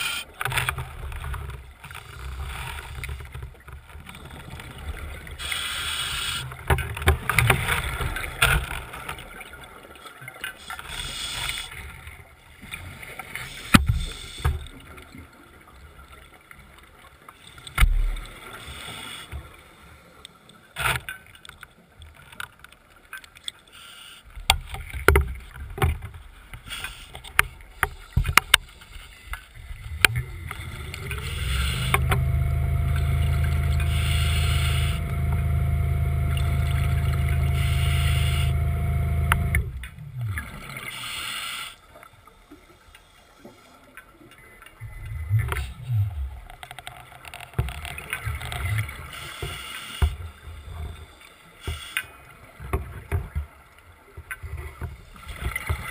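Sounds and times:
underwater electric motor whine: 29.9s - 41.0s
scattered clicks: 39.2s - 39.7s.

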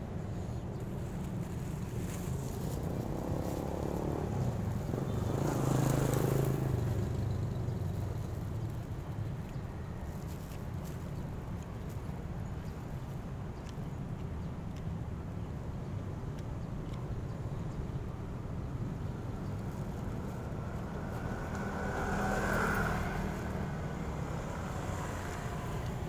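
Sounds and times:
street traffic rumble: 0.0s - 26.0s
motor vehicle passing: 1.4s - 9.0s, 18.3s - 26.0s.

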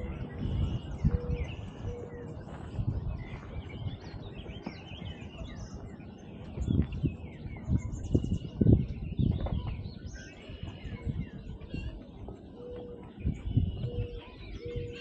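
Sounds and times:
low thumps on microphone: 0.0s - 2.0s, 6.6s - 10.0s
songbirds chirping: 0.0s - 15.0s.

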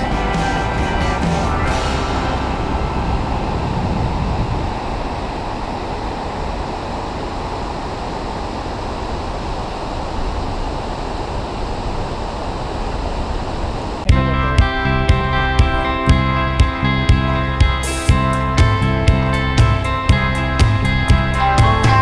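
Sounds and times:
music: 0.0s - 3.8s, 14.1s - 22.0s.

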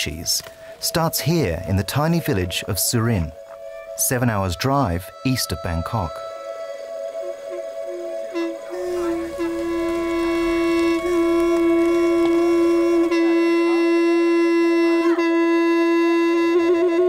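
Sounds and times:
horn trumpet blowing: 6.3s - 17.0s.

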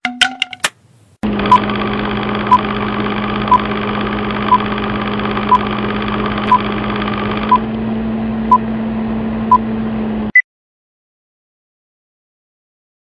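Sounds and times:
whirring hum: 1.2s - 10.3s.

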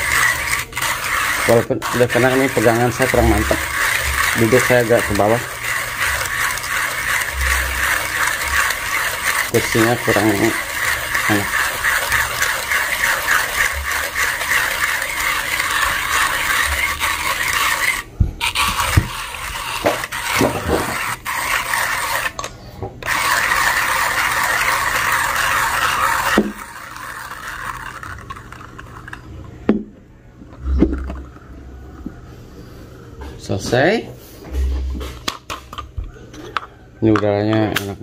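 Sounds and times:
hand coffee grinder crunching beans: 0.0s - 29.4s.

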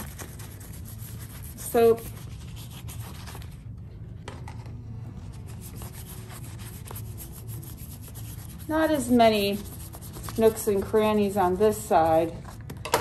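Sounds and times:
toothbrush scrubbing leaf: 0.0s - 3.6s, 5.4s - 10.7s.

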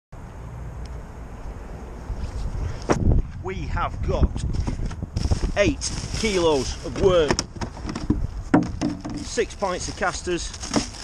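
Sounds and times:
wind rumble on microphone: 1.9s - 10.2s.

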